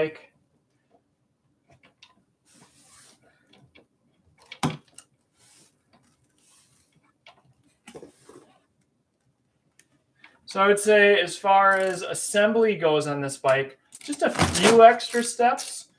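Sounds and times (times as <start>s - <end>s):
soft rustling: 2.4s - 4.3s, 5.1s - 8.8s.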